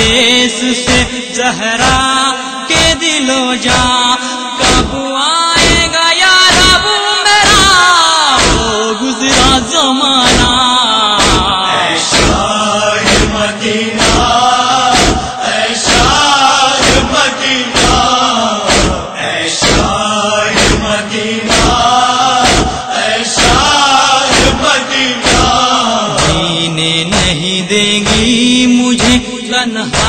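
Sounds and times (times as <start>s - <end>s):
man chanting a lament: 0.0s - 30.0s
steady beat: 11.2s - 19.0s, 19.6s - 22.8s, 23.4s - 26.5s, 27.1s - 28.4s, 29.0s - 29.2s.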